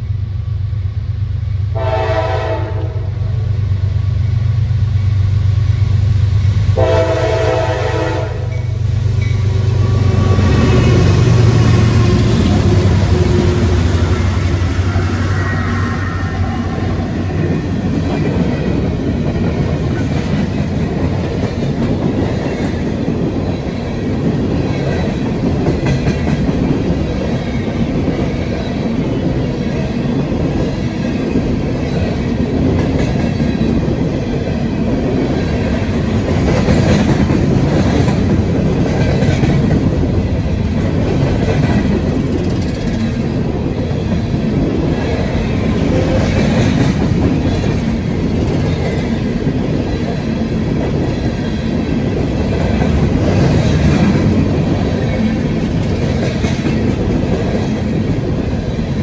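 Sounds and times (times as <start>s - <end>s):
train wheels rumbling on rails: 0.0s - 59.0s
clickety-clack over rail joints: 17.3s - 59.0s.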